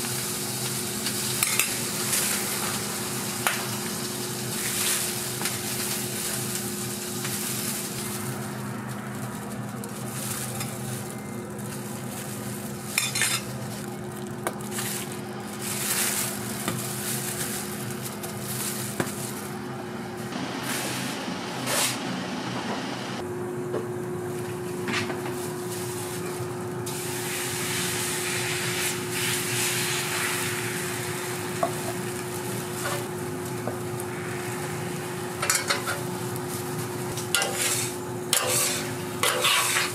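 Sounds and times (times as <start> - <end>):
food sizzling on a griddle: 0.0 - 8.7, 26.9 - 39.9
metal spatula scraping: 37.3 - 39.9.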